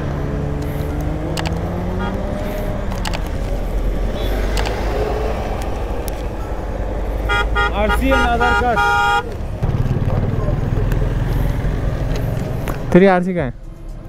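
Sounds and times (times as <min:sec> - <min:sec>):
vehicle engine running: 0:00.0 - 0:14.0
sharp clicks: 0:00.6 - 0:02.2, 0:02.9 - 0:03.6, 0:04.4 - 0:04.9.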